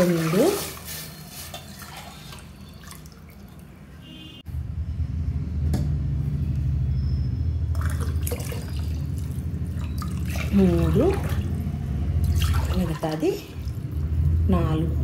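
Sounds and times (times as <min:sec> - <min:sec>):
water pouring and splashing: 0:00.0 - 0:03.8, 0:07.7 - 0:14.4.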